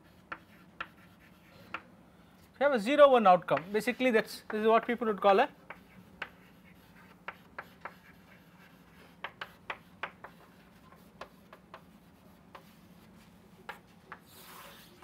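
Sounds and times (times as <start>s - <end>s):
chalk tapping and scratching: 0.0s - 1.8s, 5.6s - 15.0s
faint steady hum: 0.0s - 15.0s.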